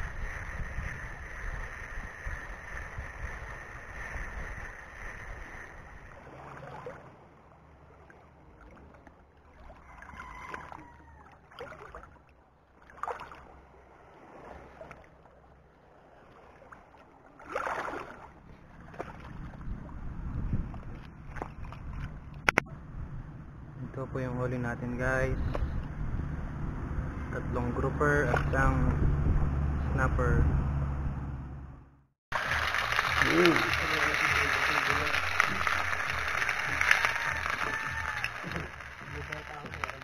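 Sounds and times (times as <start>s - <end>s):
wind buffeting microphone: 0.0s - 6.2s, 19.2s - 23.8s, 24.8s - 31.1s
small waves lapping: 0.0s - 22.6s, 32.3s - 40.0s.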